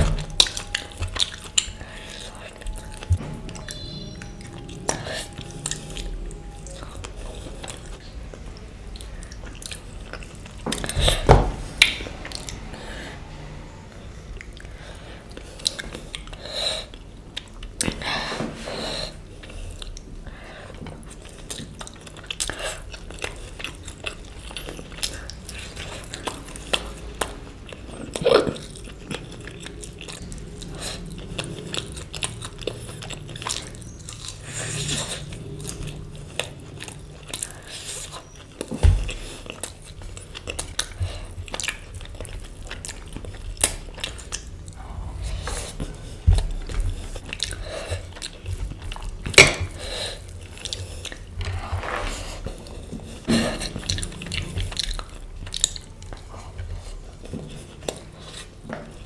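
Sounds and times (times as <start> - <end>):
chewing and biting food: 0.0 - 13.4, 14.4 - 59.0.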